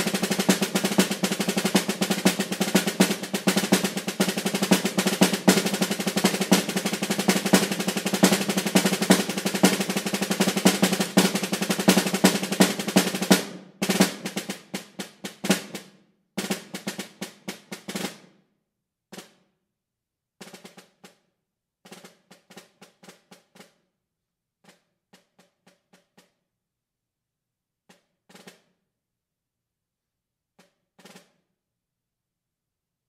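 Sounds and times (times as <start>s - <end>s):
snare drum strokes and rolls: 0.0s - 18.4s, 19.1s - 19.4s, 20.4s - 21.2s, 21.9s - 23.8s, 28.3s - 28.7s, 31.0s - 31.4s.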